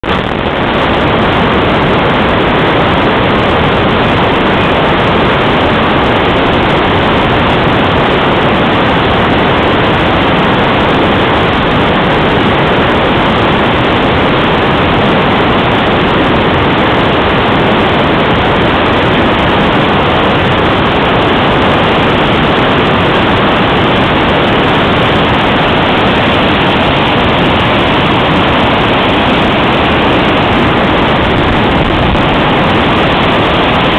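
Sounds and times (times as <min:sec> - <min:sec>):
whitewater rapids rushing: 0:00.0 - 0:33.9.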